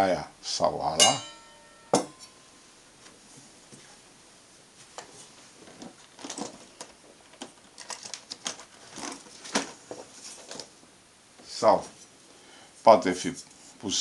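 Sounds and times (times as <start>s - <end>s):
small items clicking in metal case: 6.2s - 9.7s.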